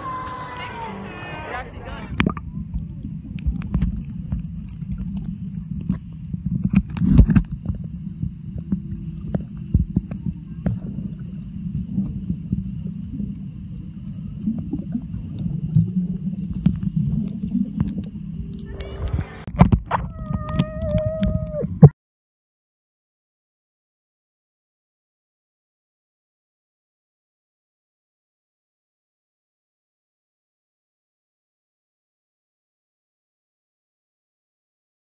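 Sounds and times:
muffled underwater rumble: 0.0 - 21.9
underwater knocks and clicks: 2.1 - 11.1, 14.5 - 21.9.

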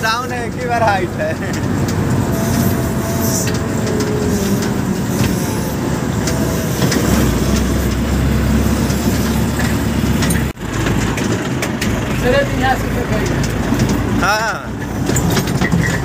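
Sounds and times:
diesel engine running: 0.0 - 16.0
road and wind noise: 0.0 - 16.0.

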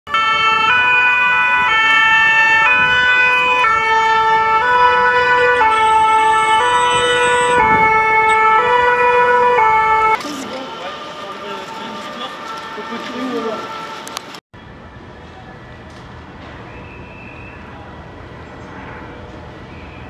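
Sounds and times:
two-tone siren: 0.1 - 16.0
faint street noise: 0.1 - 20.0.

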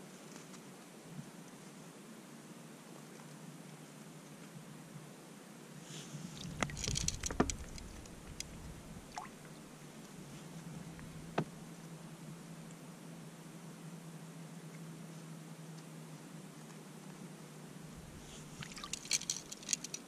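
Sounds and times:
water splashing and dripping: 6.4 - 9.6, 18.4 - 20.0
low rumble: 17.9 - 18.6.

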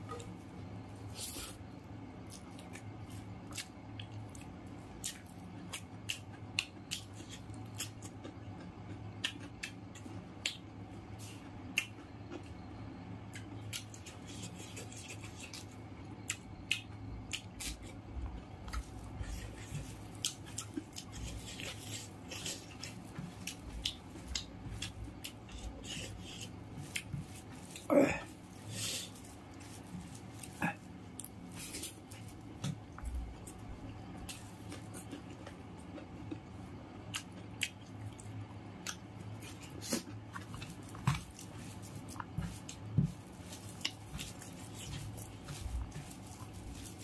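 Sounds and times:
low steady hum: 0.0 - 47.0
chewing and lip smacking: 11.4 - 12.7, 29.2 - 47.0.

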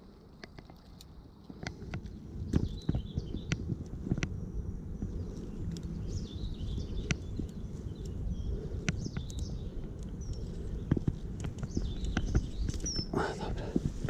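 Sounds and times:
small birds chirping: 0.0 - 14.0
steady low rumble: 0.0 - 14.0
sharp clicks: 8.8 - 13.2.

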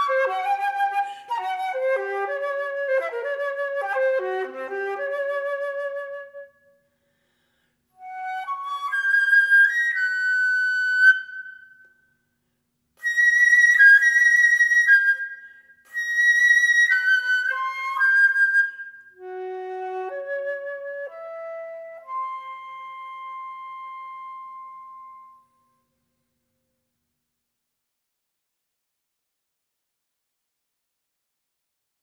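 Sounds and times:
solo flute melody: 0.0 - 6.8, 8.0 - 12.0, 13.0 - 25.9.

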